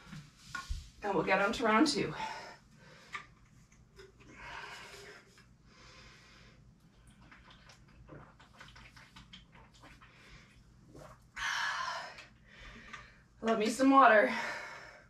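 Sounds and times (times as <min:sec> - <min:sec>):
person breathing: 0:04.3 - 0:06.7, 0:11.4 - 0:13.4.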